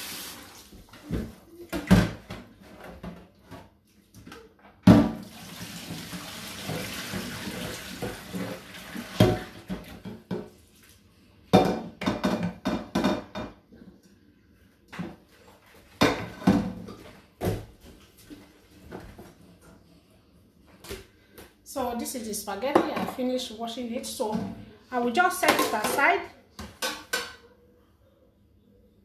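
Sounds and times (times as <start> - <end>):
water pouring into sink: 0.0 - 0.9, 5.2 - 10.0
cooking pot knocking against sink: 11.6 - 13.6.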